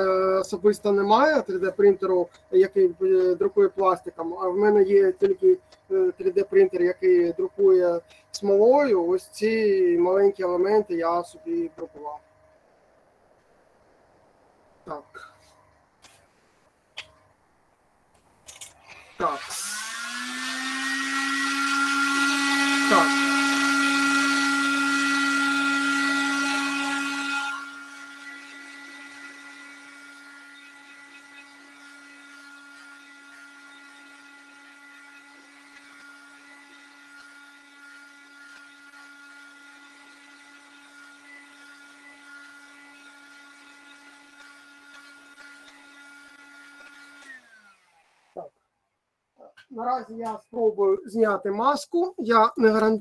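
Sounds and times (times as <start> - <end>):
small electric motor running: 18.9 - 48.5.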